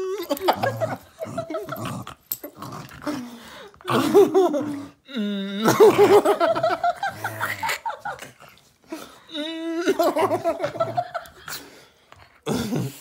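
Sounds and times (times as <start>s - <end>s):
small dog growling and snarling: 0.6s - 4.9s.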